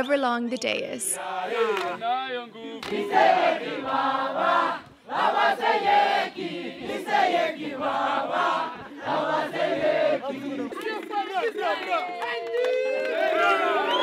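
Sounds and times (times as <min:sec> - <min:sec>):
group singing a chant: 0:01.2 - 0:11.7.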